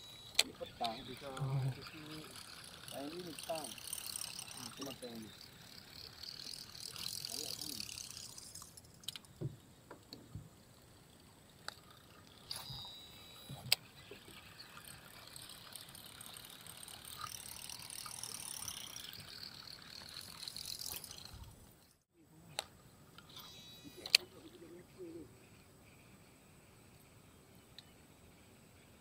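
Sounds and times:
faint steady hiss: 0.0 - 29.0
fishing reel clicks and knocks: 0.1 - 9.4, 11.5 - 21.4.

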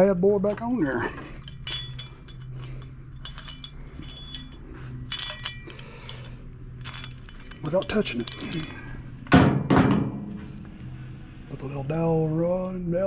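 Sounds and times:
steady low hum: 0.0 - 13.0
metallic clinks and rattles: 0.4 - 10.6.

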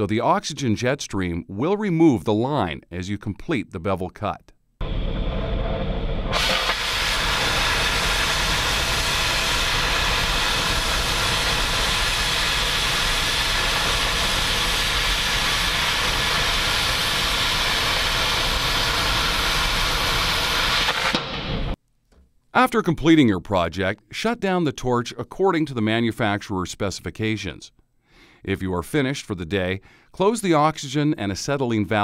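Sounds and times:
cutting torch jet hissing: 4.8 - 21.8
torch flame rumbling: 4.8 - 21.8.

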